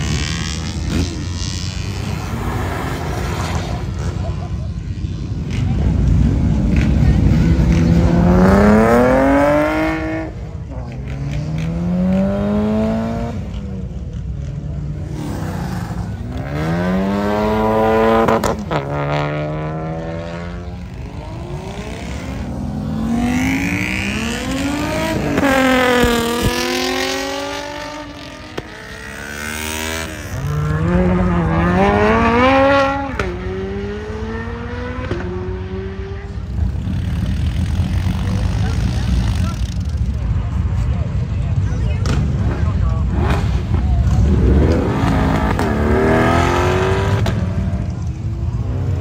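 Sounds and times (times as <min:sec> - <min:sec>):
cars accelerating hard: 0:00.0 - 0:39.6, 0:42.0 - 0:49.0.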